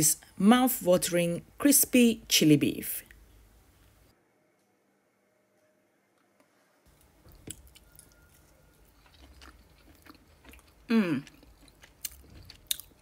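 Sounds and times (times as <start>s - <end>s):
person chewing crunchy food: 6.9s - 13.0s.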